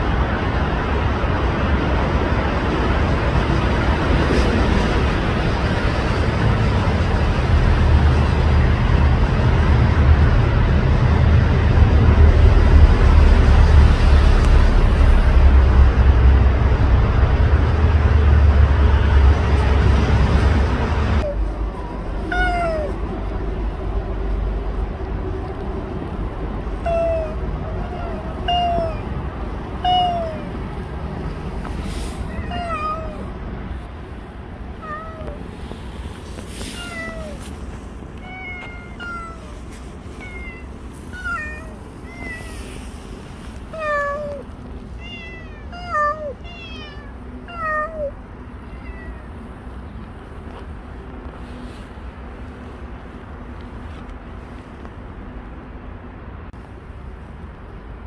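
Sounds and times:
cat meowing: 21.2 - 23.0, 26.8 - 29.2, 29.8 - 30.6, 32.2 - 33.3, 34.8 - 35.4, 36.6 - 37.5, 38.2 - 39.6, 40.2 - 42.7, 43.7 - 49.3.

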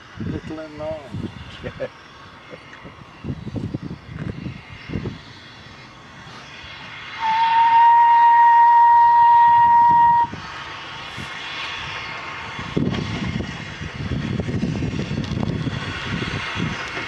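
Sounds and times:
steam locomotive whistle: 7.2 - 10.4.

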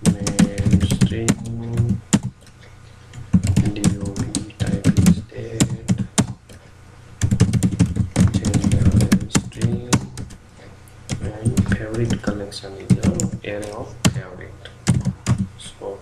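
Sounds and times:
typing on a keyboard: 0.0 - 2.3, 3.2 - 6.4, 7.2 - 10.4, 12.9 - 14.2.

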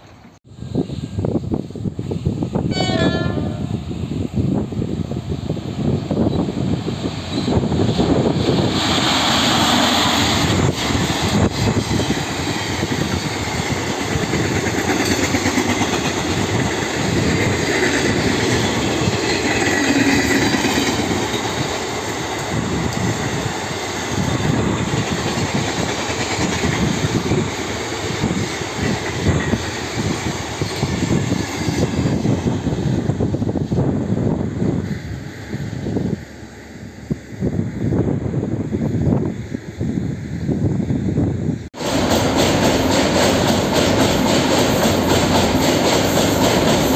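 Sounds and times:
train wheels rumbling on rails: 0.0 - 46.9
clatter over the track: 6.2 - 21.8, 24.2 - 27.6, 41.8 - 46.9.

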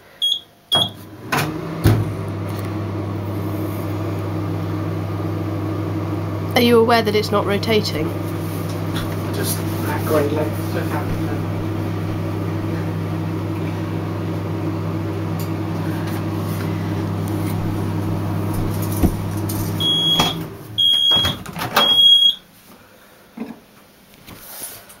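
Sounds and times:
microwave oven humming: 0.0 - 22.5
microwave click: 18.2 - 22.4
short high beeps: 19.8 - 22.4.

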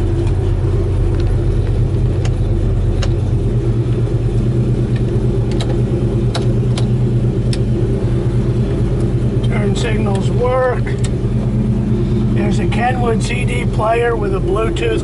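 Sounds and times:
engine idling: 0.0 - 15.0
dash switches clicking: 4.9 - 7.7, 10.1 - 11.6.

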